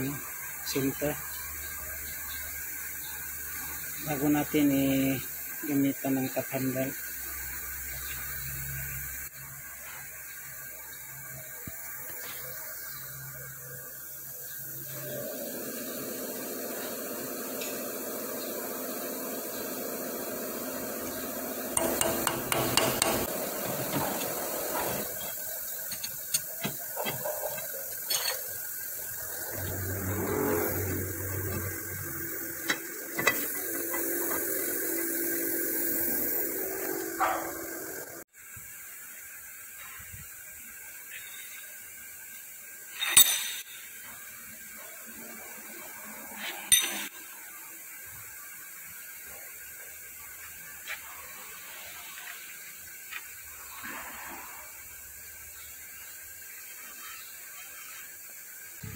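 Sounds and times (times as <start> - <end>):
metal clinks and knocks: 25.8 - 28.6
lathe machine hum: 28.8 - 38.3.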